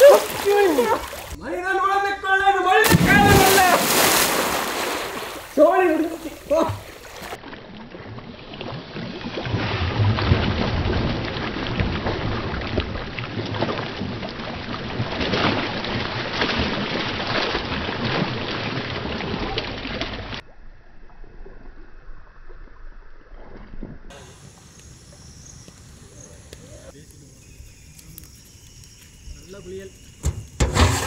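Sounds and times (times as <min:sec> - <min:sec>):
people splashing in water: 0:00.0 - 0:01.4, 0:02.8 - 0:07.4, 0:08.5 - 0:20.4
faint outdoor background: 0:00.0 - 0:07.5, 0:24.1 - 0:31.0.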